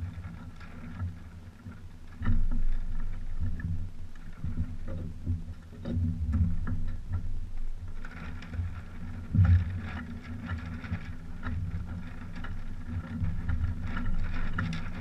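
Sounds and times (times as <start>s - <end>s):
water lapping against hulls: 0.0s - 15.0s.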